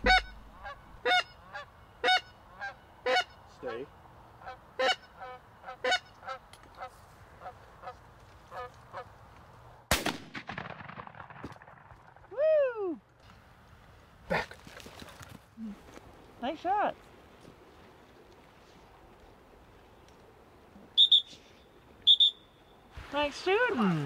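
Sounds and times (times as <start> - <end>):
goose honks: 0.0 - 9.1
shotgun blast: 9.9 - 11.8.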